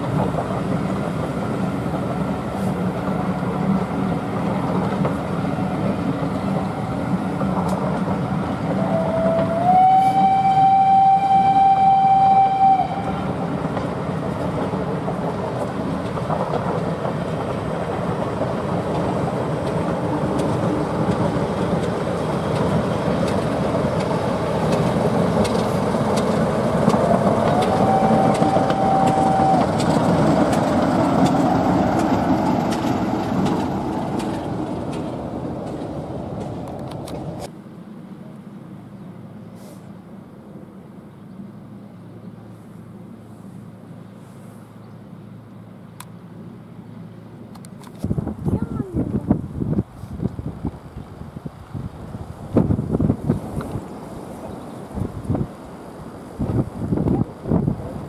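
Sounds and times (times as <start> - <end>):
train wheels clattering on rails: 0.0 - 9.8, 13.0 - 37.5
locomotive whistle: 8.7 - 13.4, 27.0 - 30.1.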